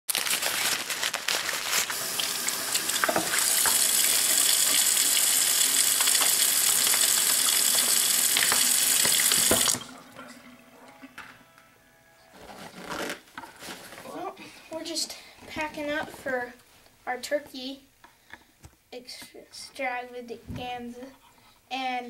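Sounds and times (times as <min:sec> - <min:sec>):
plastic pouch crinkling: 0:00.1 - 0:03.4
faucet running into sink: 0:01.9 - 0:10.4.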